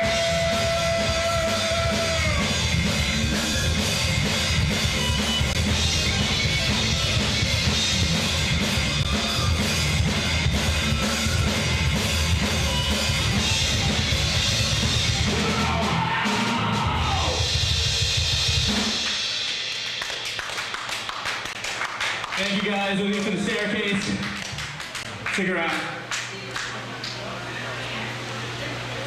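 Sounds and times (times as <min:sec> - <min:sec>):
heavy metal band playing: 0:00.0 - 0:20.0.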